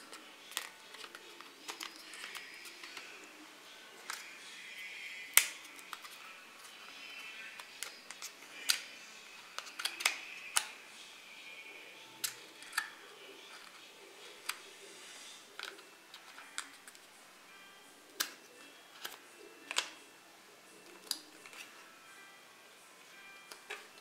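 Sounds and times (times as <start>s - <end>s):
packaging clicks and taps: 0.0s - 3.2s, 5.3s - 10.8s, 12.2s - 14.7s, 15.6s - 17.1s, 18.2s - 20.0s, 23.4s - 24.0s.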